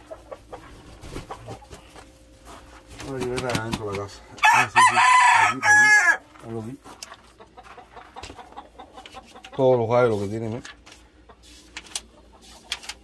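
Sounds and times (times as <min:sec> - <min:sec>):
rooster crowing: 0:04.4 - 0:06.2.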